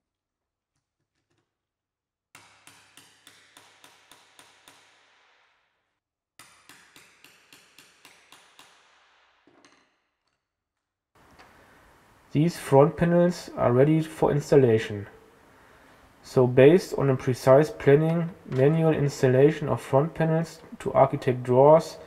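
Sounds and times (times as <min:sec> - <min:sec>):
hammer tapping a tool: 0:02.4 - 0:05.2, 0:06.4 - 0:10.4.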